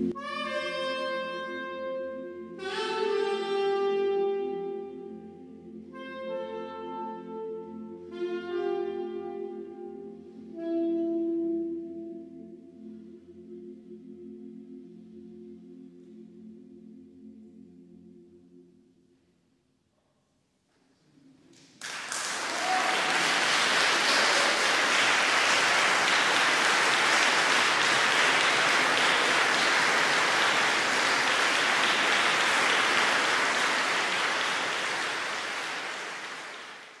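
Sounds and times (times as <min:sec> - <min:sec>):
audience applauding: 0:21.6 - 0:37.0.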